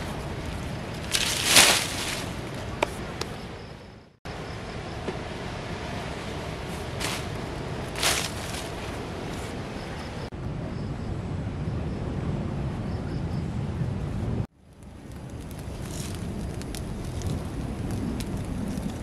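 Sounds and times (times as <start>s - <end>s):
branches dropped onto firewood: 1.0s - 3.0s, 7.0s - 9.0s.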